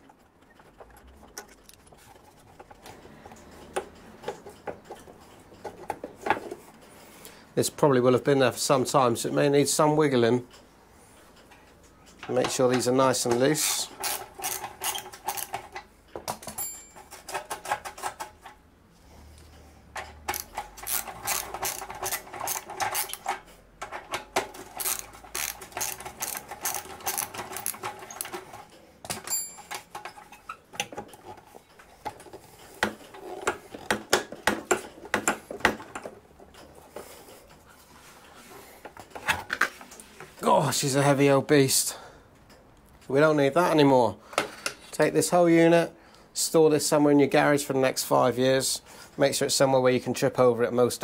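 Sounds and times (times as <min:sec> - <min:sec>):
ratchet wrench clicking: 0:13.6 - 0:15.6, 0:20.3 - 0:23.3, 0:24.8 - 0:28.3.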